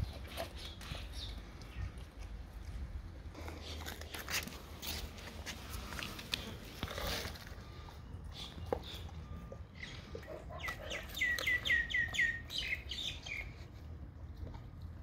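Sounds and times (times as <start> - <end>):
bird chirping: 0.0 - 2.0, 7.6 - 13.7.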